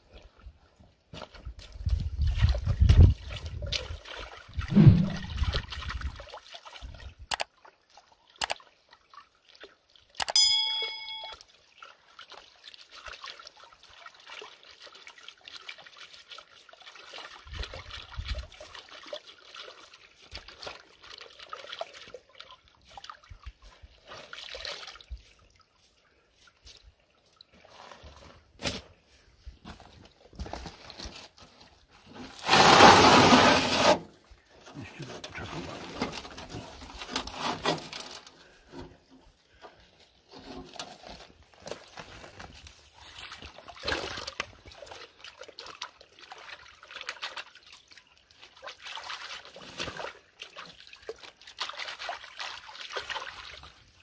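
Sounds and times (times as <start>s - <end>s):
water sloshing and trickling: 0.0s - 54.0s
short metallic ring: 10.3s - 11.4s.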